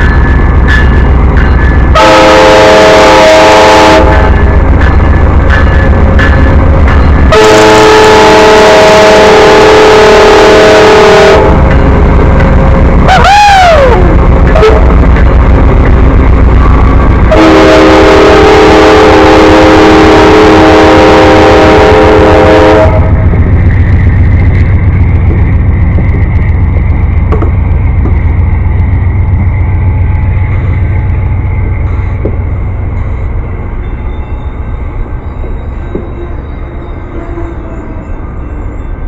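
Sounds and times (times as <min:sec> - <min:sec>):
locomotive engine rumble: 0:00.0 - 0:39.0
train air horn blast: 0:02.0 - 0:04.3, 0:07.3 - 0:11.6, 0:17.3 - 0:23.2.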